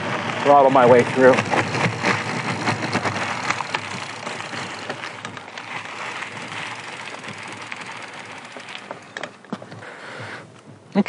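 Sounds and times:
bike tyres crunching on dirt: 0.0s - 10.5s
bike rattling: 0.0s - 10.8s.

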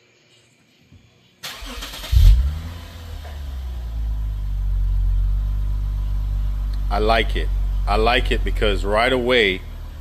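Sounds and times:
car engine starting and idling: 1.4s - 10.0s.

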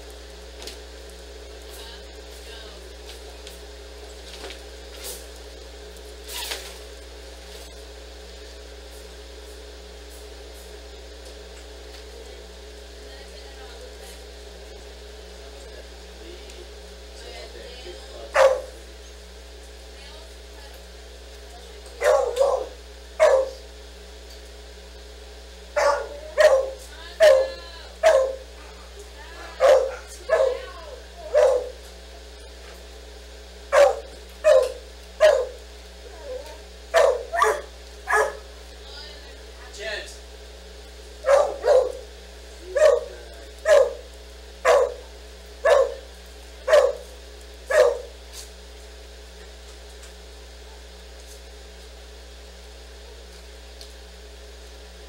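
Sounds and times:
dog barking: 18.3s - 18.8s, 22.0s - 23.6s, 25.8s - 28.8s, 29.5s - 31.8s, 33.7s - 35.6s, 36.2s - 38.5s, 41.2s - 42.1s, 42.7s - 47.1s, 47.7s - 48.2s.

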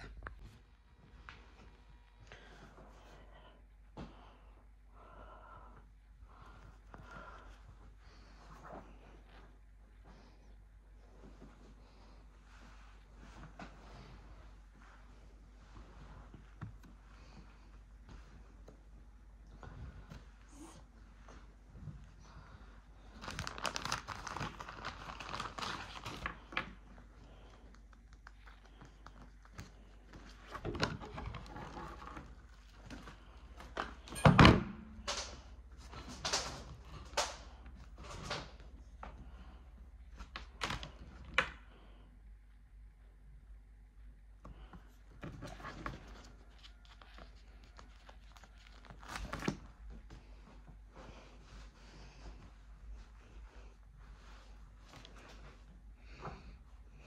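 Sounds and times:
fabric rustling and crinkling: 11.0s - 34.1s, 44.6s - 56.3s.

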